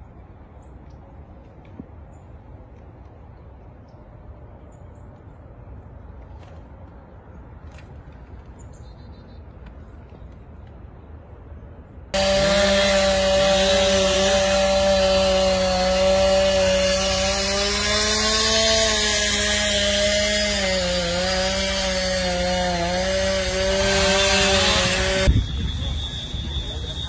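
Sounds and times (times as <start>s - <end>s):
chainsaw running at high speed: 12.2s - 27.0s.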